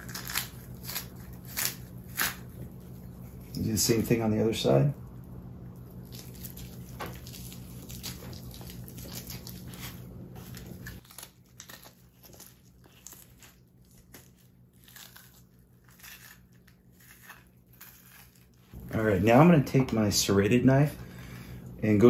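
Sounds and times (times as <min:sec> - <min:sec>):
fish skin peeling and tearing: 0:00.0 - 0:03.7, 0:05.2 - 0:18.8
low steady hum: 0:00.0 - 0:22.0.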